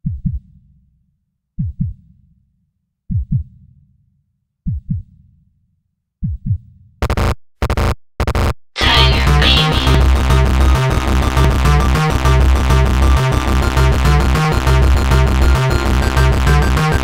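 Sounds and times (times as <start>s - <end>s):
heartbeat thumps: 0.0s - 0.5s, 1.6s - 2.0s, 3.1s - 3.5s, 4.7s - 5.1s, 6.2s - 6.7s
harsh electronic noise bursts: 7.0s - 17.0s.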